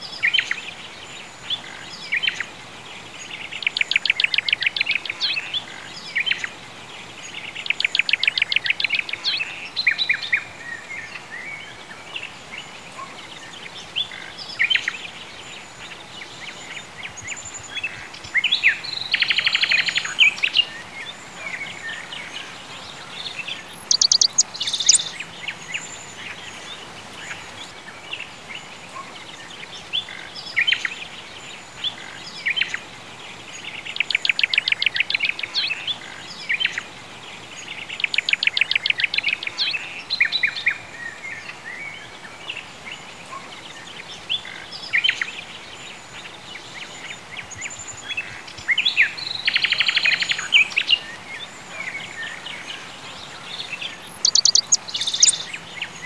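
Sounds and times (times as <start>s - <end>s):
faint steady hiss: 0.0s - 56.0s
songbirds singing: 0.0s - 56.0s.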